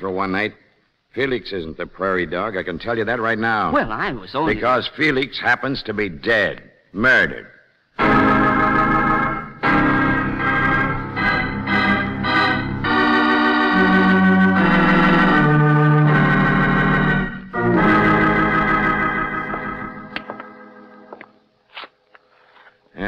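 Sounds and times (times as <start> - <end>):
dramatic organ chords: 8.0 - 21.4.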